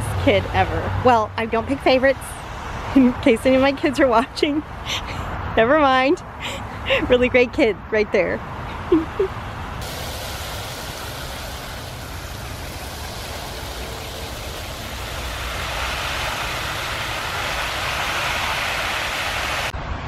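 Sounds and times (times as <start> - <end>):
hose spray hissing on plants: 9.8 - 19.7.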